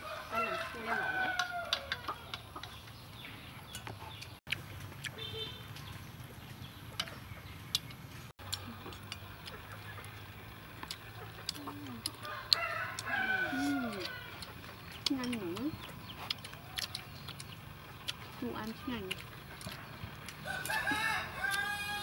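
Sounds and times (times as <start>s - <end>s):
rooster crowing: 0.0s - 2.3s, 12.2s - 14.4s, 20.4s - 22.0s.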